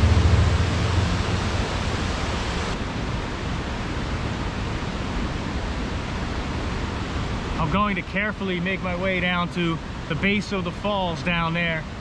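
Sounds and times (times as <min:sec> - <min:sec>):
waterfall rushing: 0:00.0 - 0:04.1.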